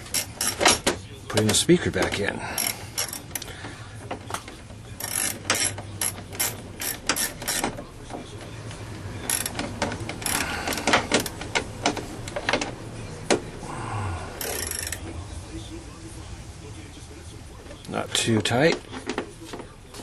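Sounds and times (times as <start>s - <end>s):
socket ratchet clicking: 2.6s - 3.5s, 5.0s - 7.8s, 9.3s - 11.6s, 14.4s - 15.0s.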